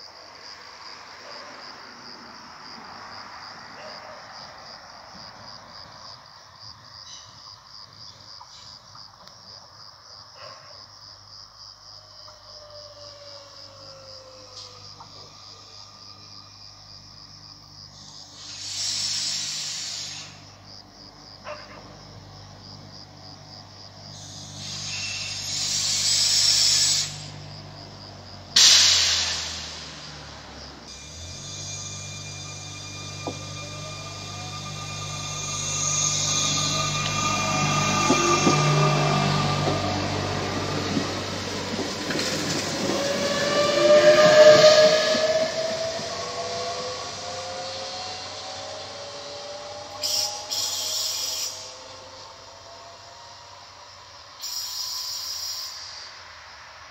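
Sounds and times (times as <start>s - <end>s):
crickets chirping: 0.0s - 56.9s
train traction motor whine: 12.3s - 56.2s
wheels rumbling on rails: 12.3s - 56.9s
bursts of hissing noise: 18.0s - 20.6s, 24.1s - 38.0s.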